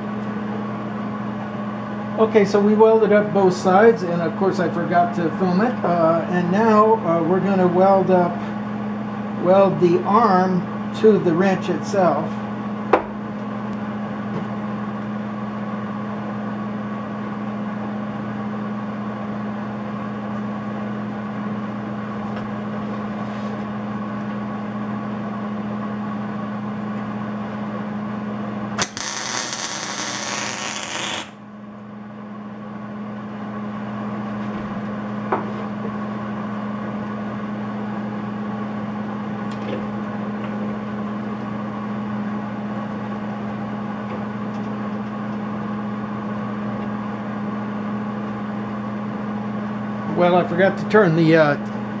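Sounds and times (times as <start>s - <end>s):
electrical hum: 0.0s - 52.0s
welder arc crackling: 28.8s - 31.4s.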